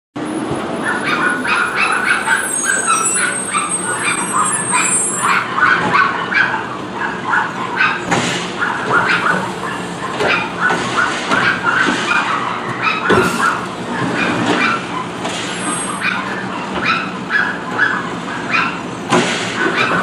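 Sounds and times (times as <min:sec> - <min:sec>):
dog barking rapidly: 0:00.8 - 0:15.2, 0:15.8 - 0:18.9, 0:19.5 - 0:20.0
garbage truck engine running: 0:06.6 - 0:20.0.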